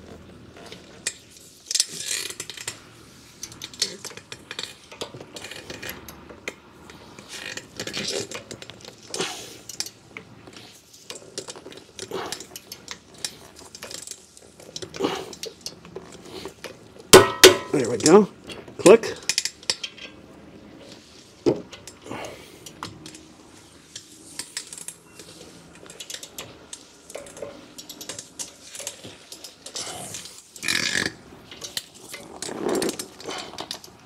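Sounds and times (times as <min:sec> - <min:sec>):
metal tools clinking: 0:17.2 - 0:20.2.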